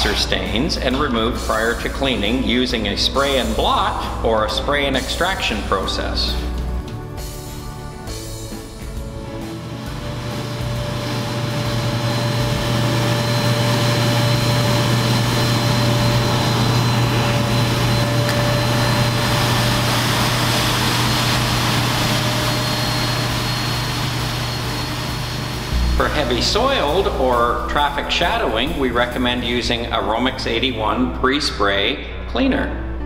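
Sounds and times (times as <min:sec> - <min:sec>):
carpet extractor vacuum motor: 0:09.6 - 0:25.8.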